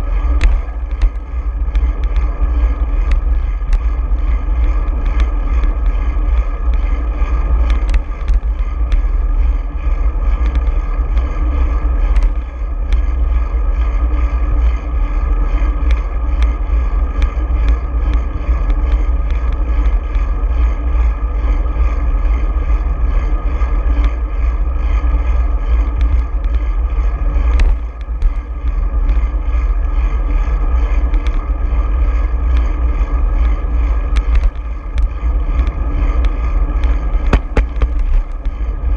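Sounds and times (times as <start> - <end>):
bicycle clicks and knocks: 0.0 - 21.1, 23.8 - 26.7, 27.3 - 38.9
wind buffeting microphone: 0.0 - 38.9
tyre and road noise: 27.2 - 38.9.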